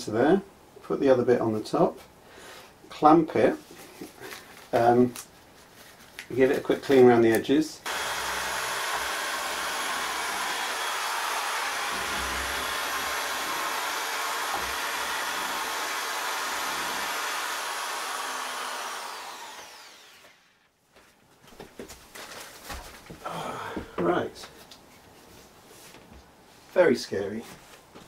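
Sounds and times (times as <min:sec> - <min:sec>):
electric fan motor running: 0:07.9 - 0:20.5.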